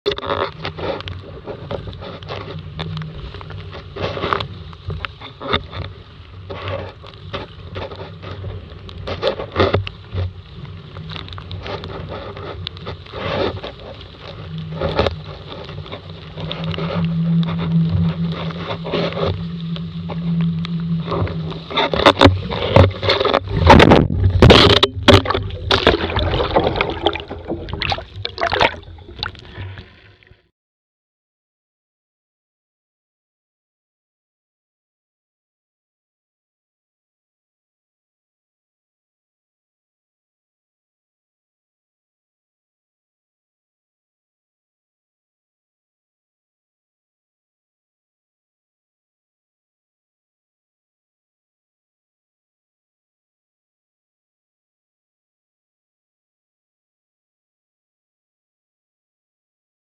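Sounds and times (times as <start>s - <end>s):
heavy splashing: 17.5s - 30.2s
water slapping against boat hull: 21.8s - 29.7s.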